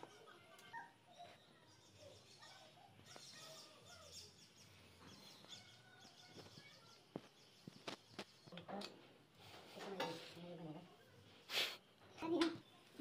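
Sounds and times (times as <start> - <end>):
distant birds chirping: 0.0 - 9.6.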